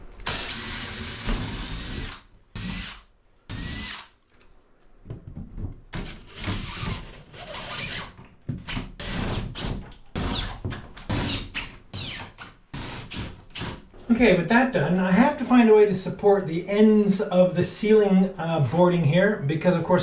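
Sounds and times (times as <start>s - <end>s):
cordless drill whining: 0.2s - 4.1s.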